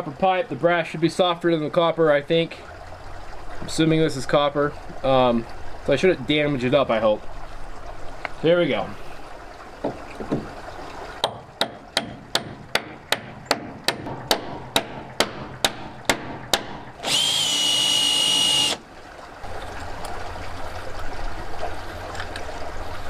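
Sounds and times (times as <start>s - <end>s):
hammer tapping copper pipe: 11.2s - 16.9s
power drill whining: 17.0s - 18.8s.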